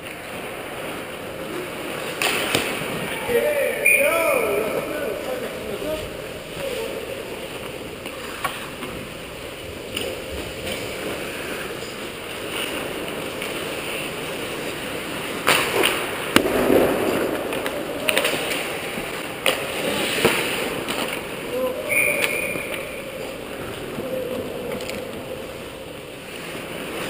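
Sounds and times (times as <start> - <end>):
hockey sticks and puck clacking: 0.0 - 3.0, 9.9 - 24.0
skates scraping on ice: 10.0 - 25.6.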